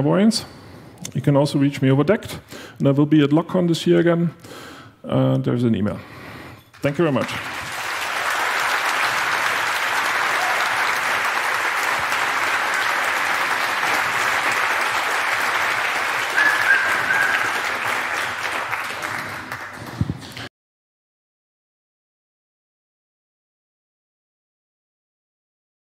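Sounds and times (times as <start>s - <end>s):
audience applauding: 6.8s - 20.5s
crowd calling out: 10.1s - 11.0s, 16.2s - 18.0s.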